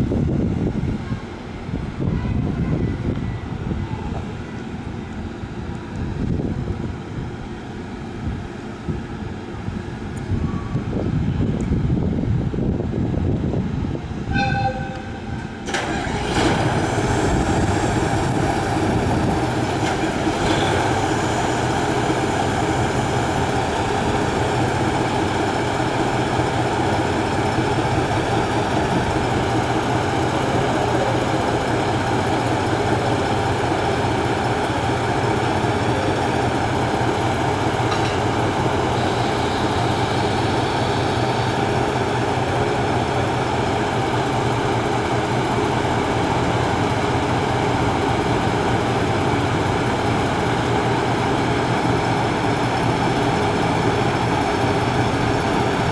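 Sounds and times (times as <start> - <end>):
train horn toot: 14.3 - 15.4
diesel engine starting and idling: 15.3 - 55.9.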